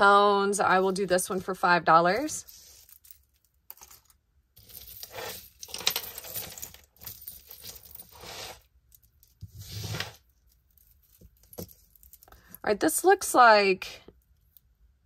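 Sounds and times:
jewelry clinking and rattling: 2.2 - 12.7.

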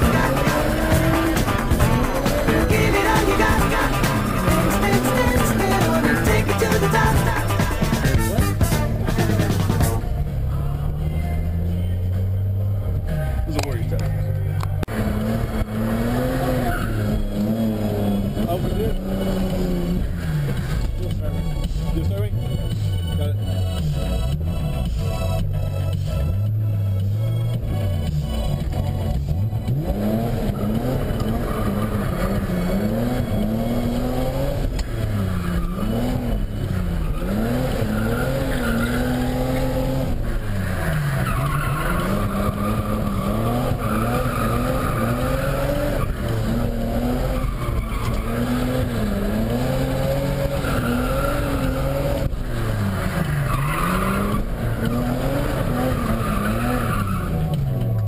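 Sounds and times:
car engine revving: 0.0 - 58.0
tyres squealing: 30.5 - 57.7.

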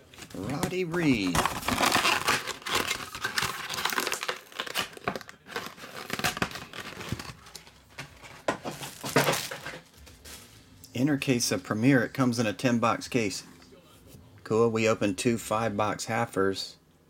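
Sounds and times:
plastic packaging crinkling: 0.0 - 10.8.

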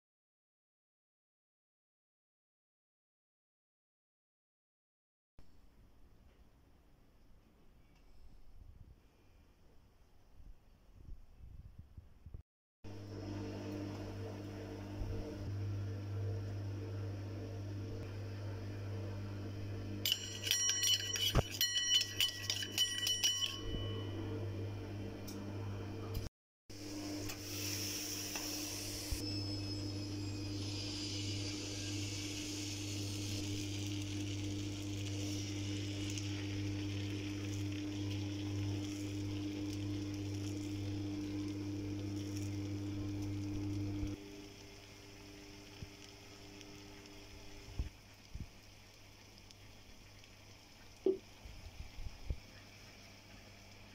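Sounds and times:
low hum: 12.9 - 48.0
metal spoon clinking in steel cup: 20.1 - 24.2.

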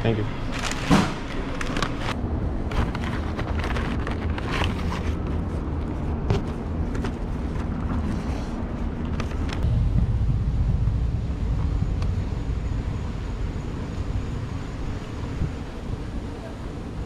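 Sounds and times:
steady low rumble: 0.0 - 17.0
paper bag rustling and crinkling: 0.5 - 5.7.

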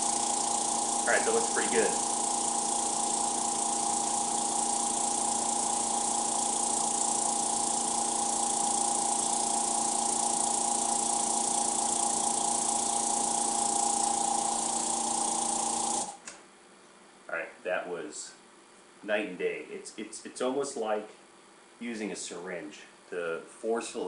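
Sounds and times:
electric pump humming: 0.0 - 16.2.

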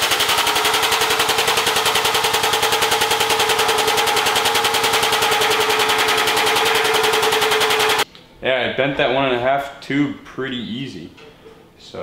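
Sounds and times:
machine chattering over hum: 0.0 - 8.0.

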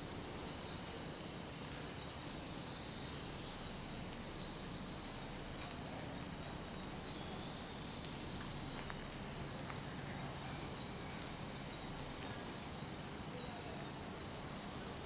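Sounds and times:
faint outdoor background noise: 0.0 - 15.0
faint ticks: 3.4 - 13.6.

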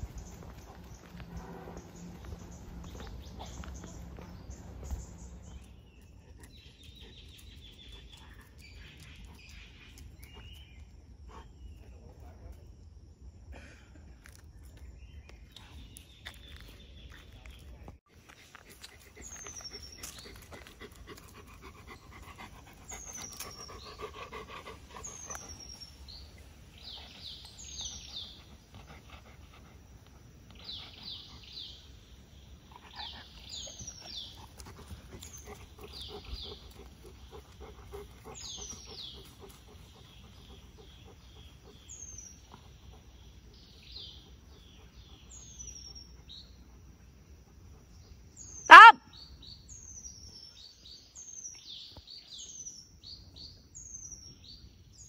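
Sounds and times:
dog panting: 0.0 - 10.6, 18.3 - 31.9, 32.6 - 48.0.

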